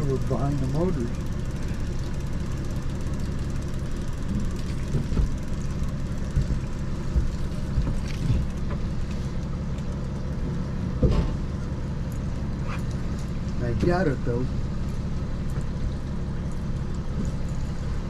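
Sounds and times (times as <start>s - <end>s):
outboard motor running: 0.0s - 18.0s
knocks and clunks on boat: 1.2s - 11.8s, 13.1s - 14.2s.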